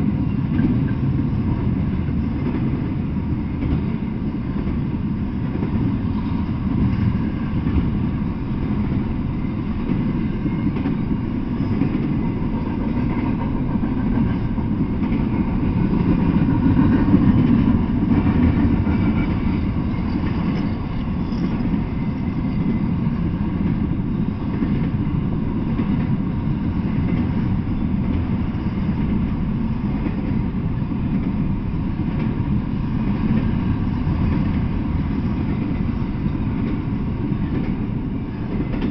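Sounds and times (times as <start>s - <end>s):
freight train rumbling past: 0.0s - 38.9s.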